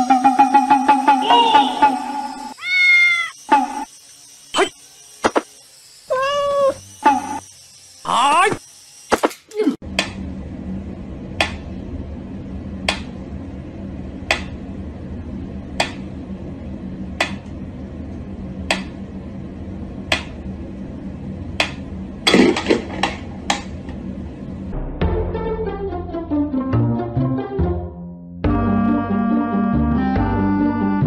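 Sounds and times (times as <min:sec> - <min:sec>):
low steady hum: 0:09.8 - 0:25.0.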